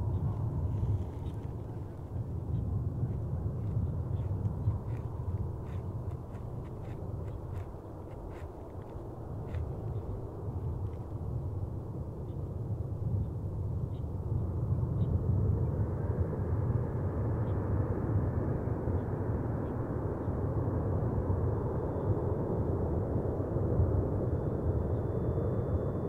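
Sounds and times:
distant jet engines rumbling: 0:00.0 - 0:17.0.

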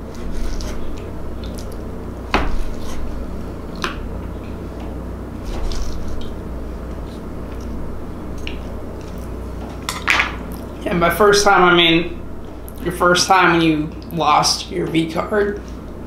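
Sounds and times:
knife cutting wet ribs: 0:00.0 - 0:03.1
low steady hum: 0:00.0 - 0:16.0.

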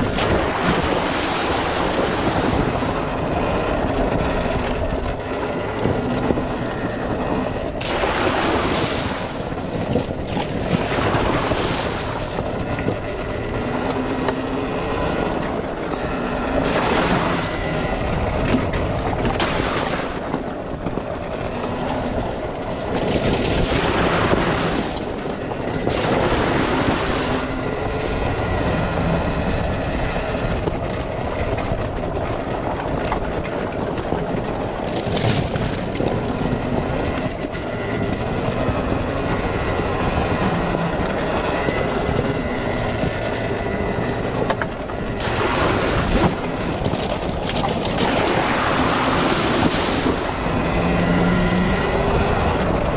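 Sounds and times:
electric motor whine: 0:35.8 - 0:52.9.

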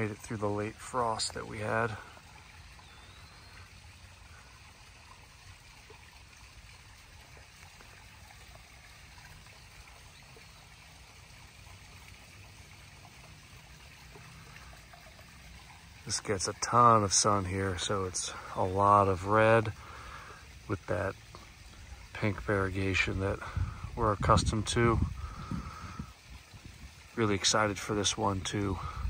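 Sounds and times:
water trickling: 0:00.0 - 0:29.0.

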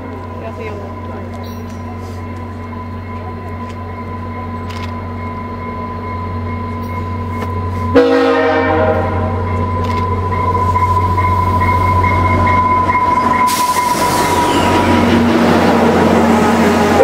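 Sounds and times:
diesel locomotive engine drone: 0:00.0 - 0:17.0
loud train horn blast: 0:07.9 - 0:09.4.

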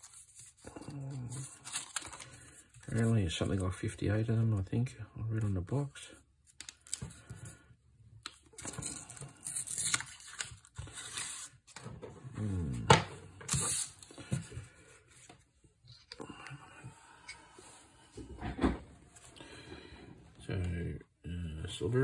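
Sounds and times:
cards being fanned and handled: 0:00.0 - 0:03.7, 0:06.4 - 0:07.6, 0:08.2 - 0:11.9, 0:13.4 - 0:16.2
paper band rustling and scraping: 0:00.0 - 0:03.7.

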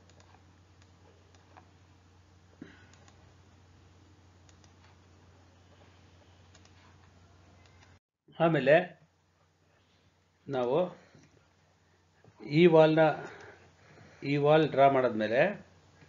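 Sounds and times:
steady low hum: 0:00.0 - 0:16.0
faint clicks: 0:04.5 - 0:05.0, 0:06.5 - 0:06.8.

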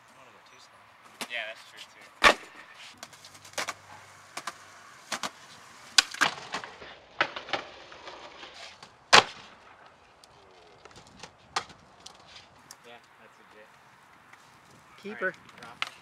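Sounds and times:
skateboard trucks grinding concrete: 0:01.5 - 0:09.6
skateboard tail pop: 0:02.2 - 0:08.2
skateboard landing slap: 0:02.2 - 0:10.0, 0:10.9 - 0:11.8
skateboard wheels clicking over cracks: 0:02.2 - 0:12.8.

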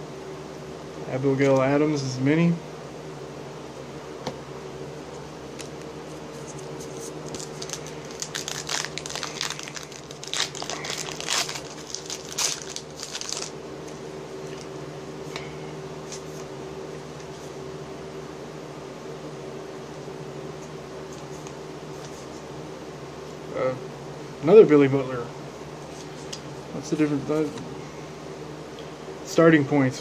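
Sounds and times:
steady low hum: 0:00.0 - 0:30.0
wrapper tearing and crinkling: 0:07.2 - 0:13.5.

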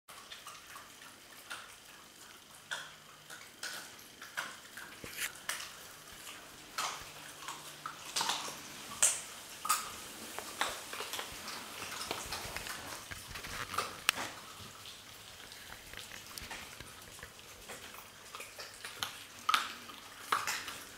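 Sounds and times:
puppies chewing and crunching bones: 0:00.1 - 0:20.9
puppies scuffling: 0:05.0 - 0:19.8.

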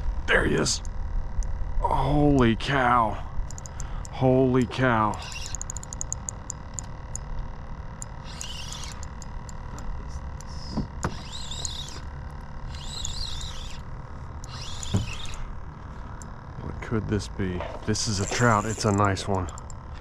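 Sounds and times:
light clicks: 0:03.5 - 0:04.2
bird warbling: 0:05.2 - 0:06.1, 0:08.2 - 0:09.2, 0:10.4 - 0:15.5.

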